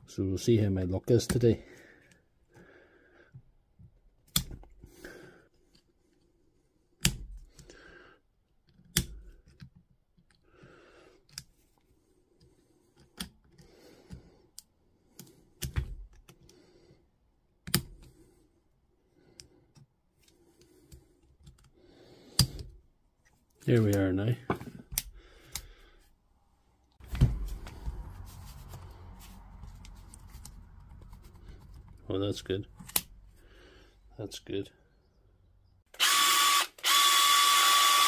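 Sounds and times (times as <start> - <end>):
scraping and handling noise: 27.0 - 33.2.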